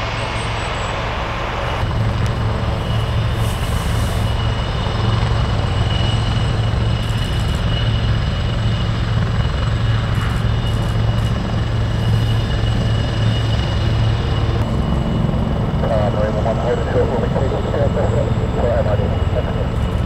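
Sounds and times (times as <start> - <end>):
helicopter rotor drone: 0.0 - 20.0
high turbine whine: 0.0 - 20.0.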